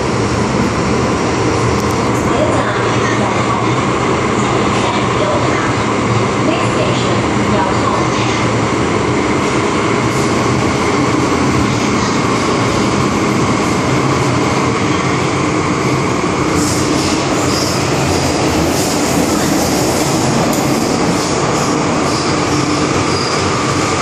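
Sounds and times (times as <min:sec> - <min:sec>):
train wheels rumbling on rails: 0:00.0 - 0:24.0
high wheel squeal: 0:22.0 - 0:23.5.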